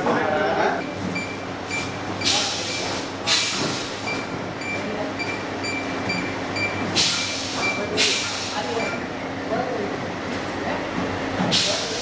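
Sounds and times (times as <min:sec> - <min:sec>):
barcode scanner beeping: 0:00.7 - 0:02.9, 0:04.0 - 0:08.0, 0:08.7 - 0:09.1.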